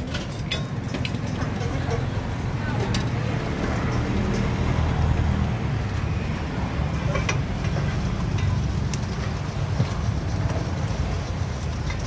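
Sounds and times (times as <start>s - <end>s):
utensils clinking on metal bowls: 0.0s - 5.4s, 7.0s - 10.8s
low engine-like rumble: 0.0s - 12.0s.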